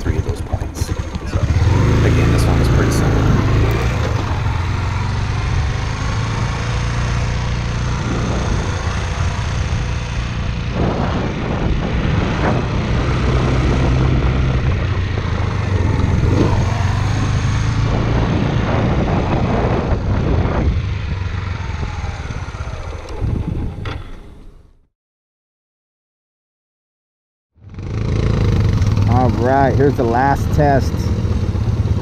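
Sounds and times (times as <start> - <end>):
motorcycle engine running: 0.0 - 24.2, 27.6 - 32.0
wind noise: 0.0 - 24.7.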